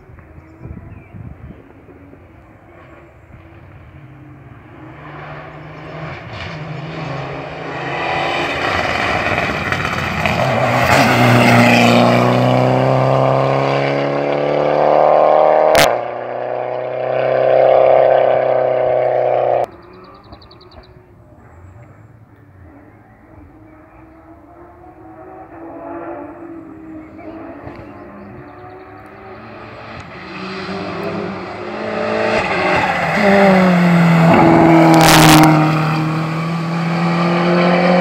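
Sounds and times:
rally car engine passing: 0:01.6 - 0:38.0.

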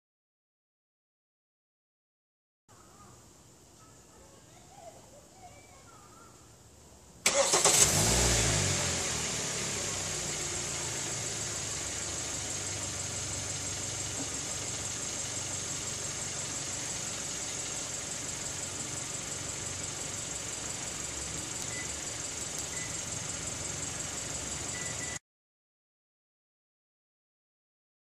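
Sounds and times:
car engine idling: 0:07.2 - 0:25.2.

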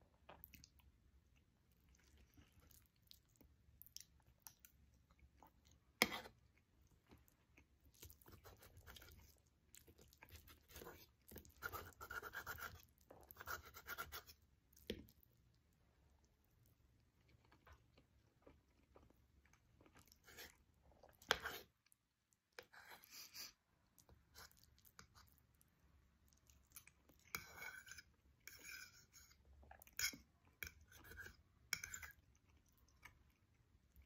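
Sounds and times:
person chewing food: 0:00.1 - 0:22.0, 0:23.4 - 0:34.0.

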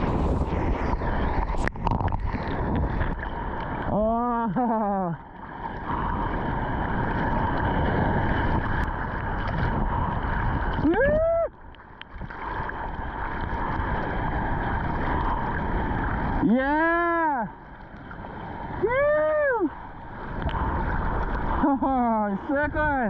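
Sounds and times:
water splashing from paddling: 0:00.0 - 0:16.8
person hooting: 0:10.9 - 0:11.5, 0:18.8 - 0:19.8.

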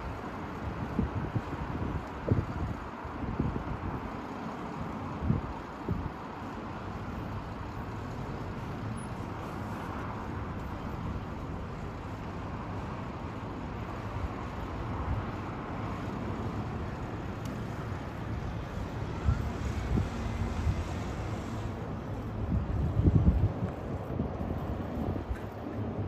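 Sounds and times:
wind buffeting microphone: 0:00.0 - 0:08.2, 0:11.2 - 0:26.0.

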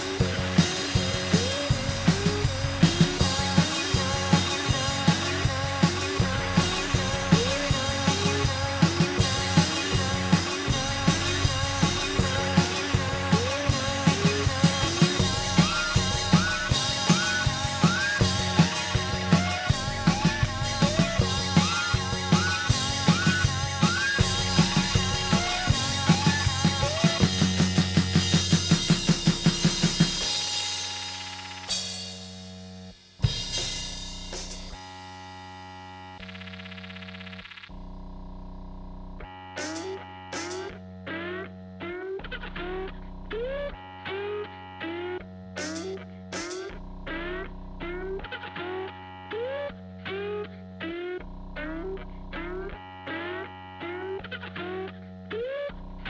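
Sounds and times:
drum kit fast hits: 0:00.0 - 0:34.9, 0:39.6 - 0:40.8, 0:45.4 - 0:48.4
bass line: 0:00.0 - 0:56.0.

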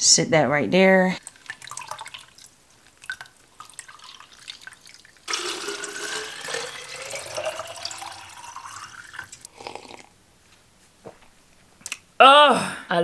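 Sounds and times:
juice dripping into plastic cup: 0:01.2 - 0:10.1
water pouring into plastic bottle: 0:01.2 - 0:10.1.

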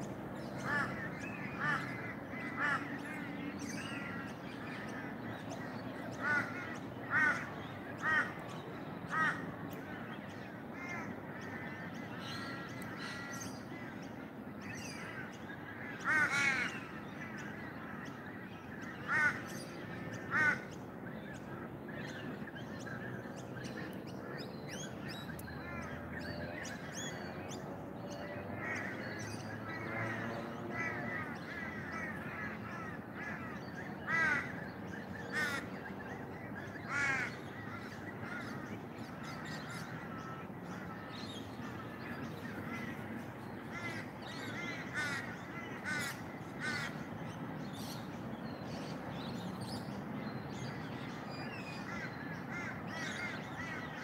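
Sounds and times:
crows cawing: 0:00.6 - 0:08.5, 0:09.1 - 0:09.5, 0:10.7 - 0:20.8, 0:28.3 - 0:48.0, 0:51.8 - 0:54.0.

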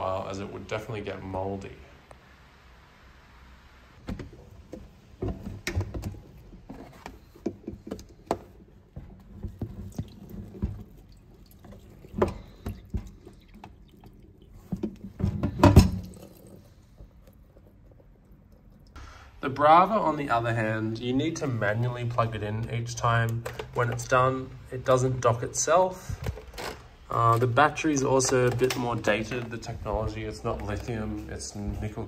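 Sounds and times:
plastic parts clicking and knocking: 0:04.0 - 0:13.8, 0:23.2 - 0:24.2, 0:26.0 - 0:31.0
liquid sounds: 0:07.8 - 0:19.1.

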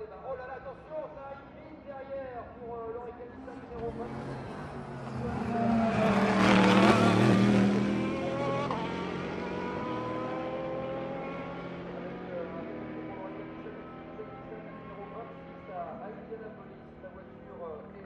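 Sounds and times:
race car engine passing: 0:03.5 - 0:17.5.

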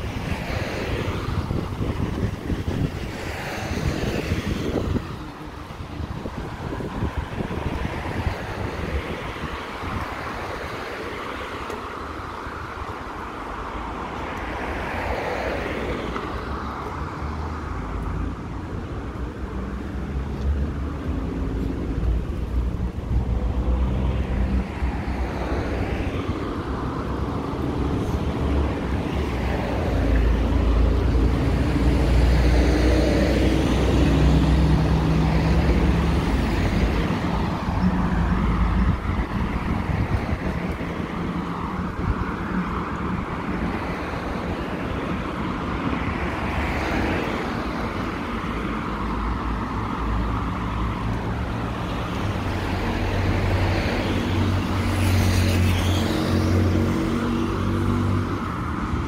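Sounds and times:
cars passing by: 0:00.0 - 0:59.0.

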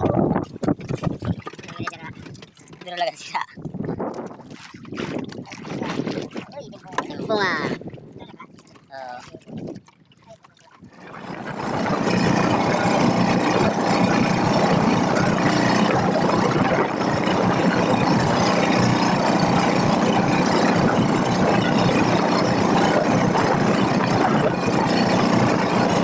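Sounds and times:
boat engine running: 0:00.0 - 0:26.0.

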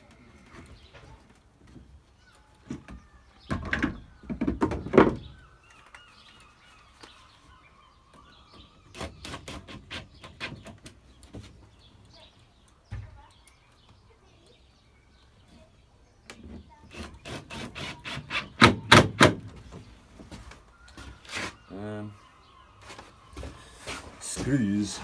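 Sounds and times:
bird chirping: 0:00.0 - 0:25.0
wooden panel knocking and scraping: 0:02.7 - 0:05.4.

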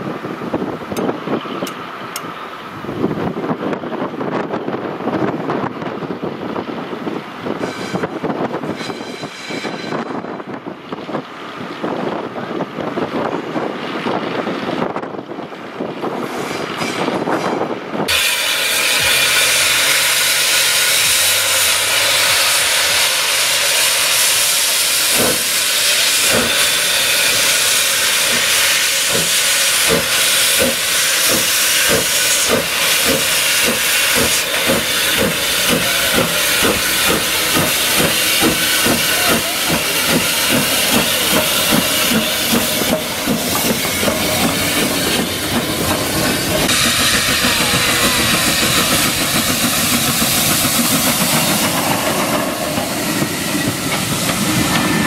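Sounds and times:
locomotive engine rumble: 0:00.0 - 0:55.0
steam hissing from locomotive: 0:07.4 - 0:10.4, 0:16.1 - 0:55.0
steam locomotive exhaust beats: 0:07.4 - 0:11.1, 0:15.8 - 0:55.0.

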